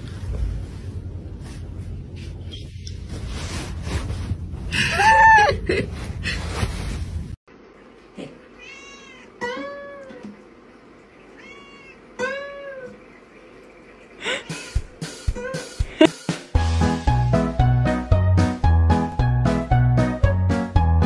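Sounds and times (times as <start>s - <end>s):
fabric rustling: 0.0s - 4.8s, 5.7s - 7.4s
cat meowing: 8.6s - 10.2s, 11.4s - 13.0s.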